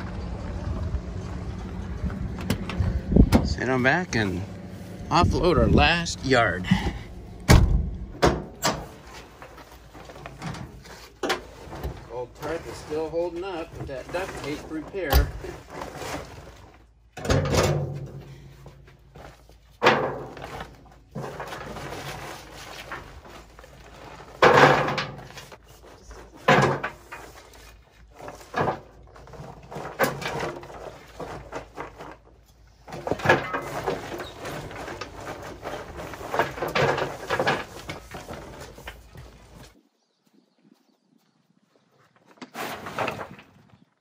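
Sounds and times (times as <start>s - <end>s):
knocks and thumps: 6.8s - 8.9s.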